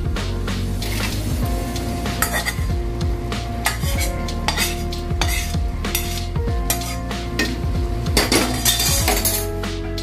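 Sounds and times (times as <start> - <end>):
light sizzle: 0.2 - 9.5
spatula scraping a pot: 2.2 - 2.7, 3.6 - 7.6, 8.2 - 9.4.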